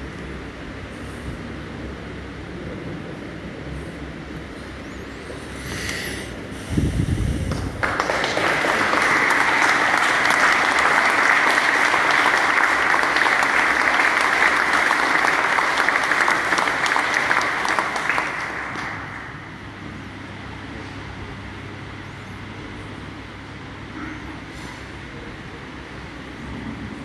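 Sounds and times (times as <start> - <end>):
congregation applauding: 7.5 - 19.7.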